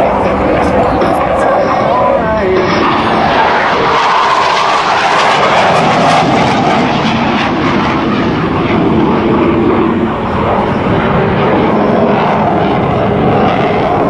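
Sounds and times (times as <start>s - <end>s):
jet flying by: 0.0s - 14.0s.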